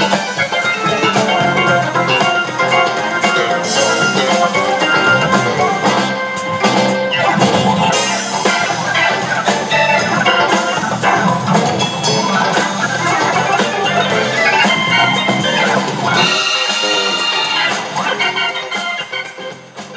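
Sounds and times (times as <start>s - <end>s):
band music: 0.0s - 19.9s
drum kit beat: 0.0s - 19.9s.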